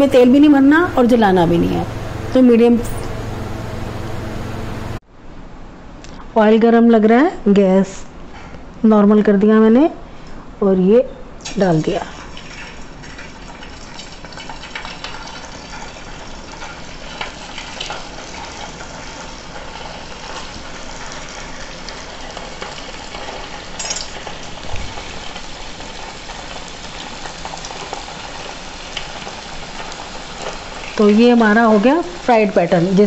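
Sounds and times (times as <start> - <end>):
food deep-frying in oil: 11.5 - 33.0.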